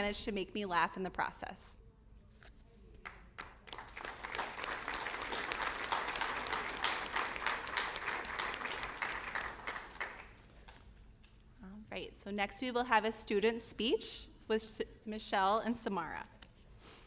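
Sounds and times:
audience applauding: 3.4 - 10.4.

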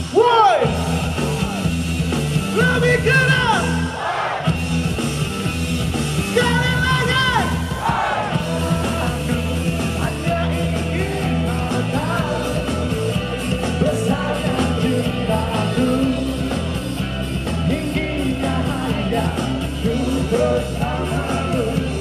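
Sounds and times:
live pop band music: 0.0 - 22.0
man singing: 8.3 - 16.8, 17.5 - 22.0.

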